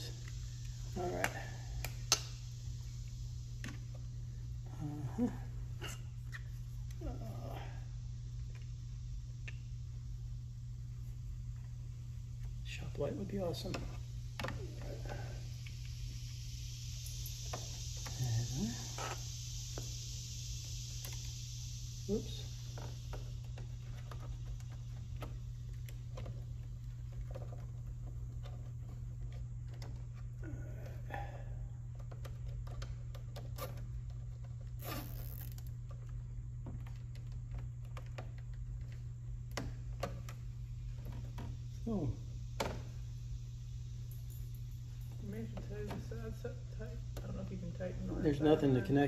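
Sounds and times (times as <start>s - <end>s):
faint high hiss: 0.0s - 26.4s, 34.8s - 35.8s
steady low hum: 0.0s - 49.0s.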